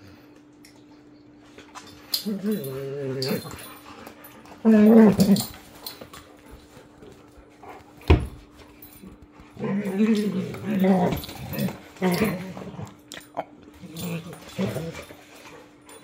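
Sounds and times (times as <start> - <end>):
dog growling: 2.2 - 5.6, 9.0 - 15.6.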